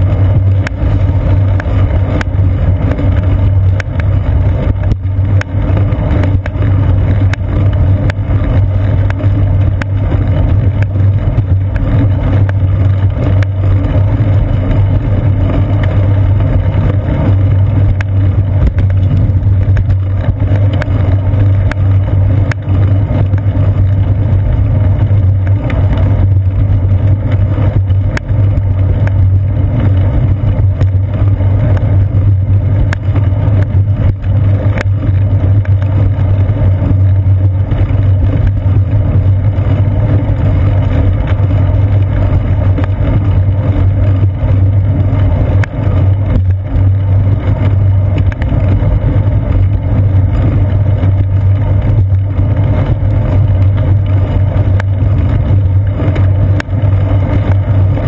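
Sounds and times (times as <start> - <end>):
bicycle road rumble: 0.0 - 58.0.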